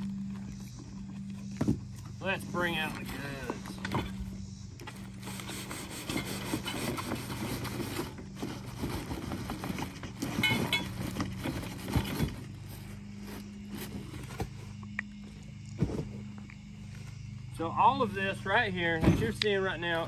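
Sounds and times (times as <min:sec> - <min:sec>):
steady low hum: 0:00.0 - 0:20.0
paper and plastic rustling: 0:04.9 - 0:14.7
cardboard box scraping on table: 0:05.2 - 0:14.6.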